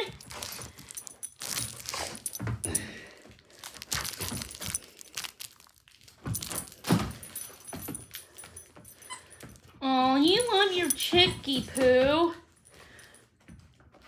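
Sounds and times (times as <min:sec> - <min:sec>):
dog collar tags jingling: 0:00.0 - 0:13.2.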